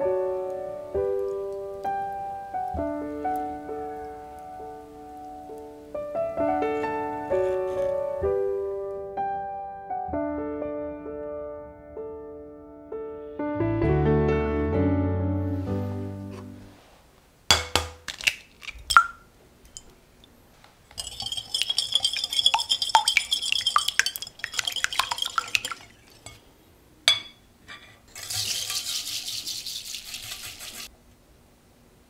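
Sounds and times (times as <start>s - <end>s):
egg cracking against glass bowl: 17.5s - 19.9s, 20.9s - 26.4s
sugar pouring hiss: 20.8s - 26.4s
wire whisk clinking in glass bowl: 20.9s - 26.4s, 28.2s - 30.9s.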